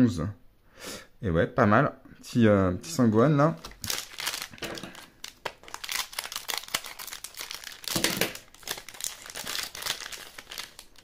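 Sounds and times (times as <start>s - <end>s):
plastic wrapper crinkling: 3.6s - 11.0s.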